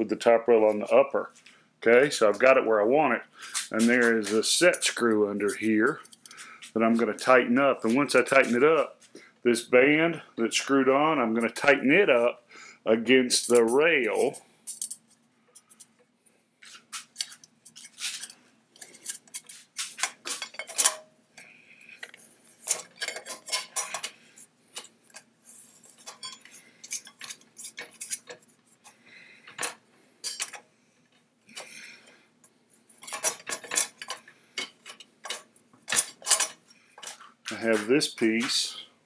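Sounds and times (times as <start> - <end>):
metal tools clicking and scraping: 5.8 - 6.5, 13.4 - 16.0, 16.7 - 30.6, 33.0 - 37.8.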